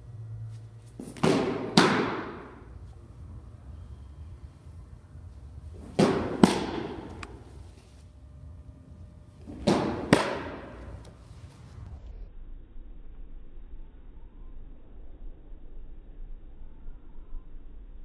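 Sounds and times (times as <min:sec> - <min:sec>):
ball smacking into leather mitt: 0:01.0 - 0:02.6, 0:05.8 - 0:07.4, 0:09.4 - 0:11.1.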